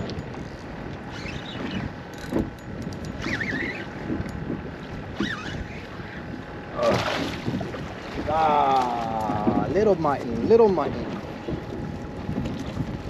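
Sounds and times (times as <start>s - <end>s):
water slapping against hull: 0.0s - 13.0s
wind buffeting microphone: 0.0s - 13.0s
wavering squeaks: 1.0s - 4.4s, 5.1s - 6.3s.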